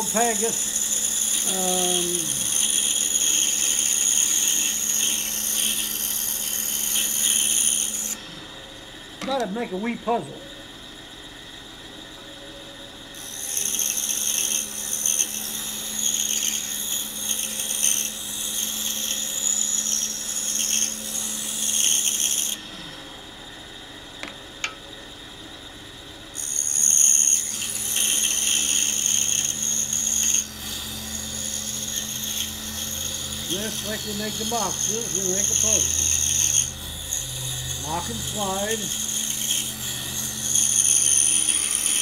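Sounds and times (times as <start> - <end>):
saw rasping through wood: 0.0 - 8.2, 26.4 - 42.0
saw running: 0.0 - 11.6, 12.6 - 25.4, 26.2 - 42.0.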